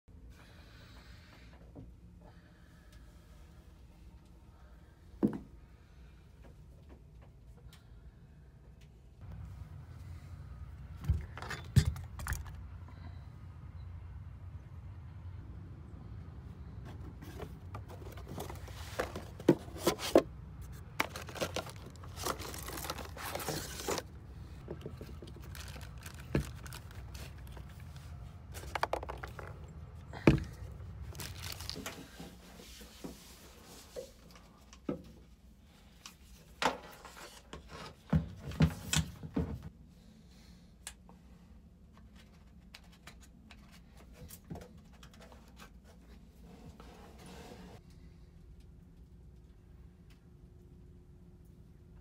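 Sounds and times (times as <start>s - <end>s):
low steady rumble: 7.4s - 33.8s
packaging crinkling and tearing: 20.8s - 24.1s, 25.0s - 27.9s, 31.1s - 32.0s
knocks and scrapes of plastic: 28.5s - 29.6s.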